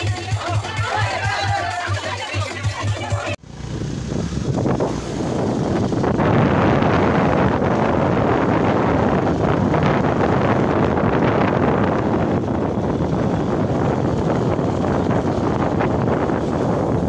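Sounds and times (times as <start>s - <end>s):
wind buffeting microphone: 3.5s - 17.0s.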